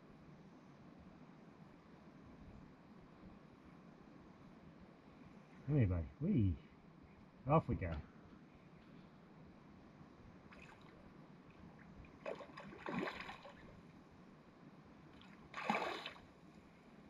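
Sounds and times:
fish splashing at water surface: 12.2 - 13.7, 15.2 - 16.3.

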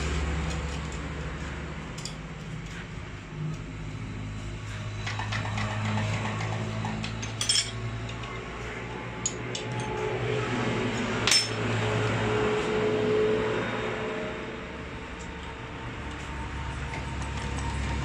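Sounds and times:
metal tools clinking: 1.9 - 2.6, 7.0 - 8.3, 9.2 - 10.1, 11.2 - 11.6.

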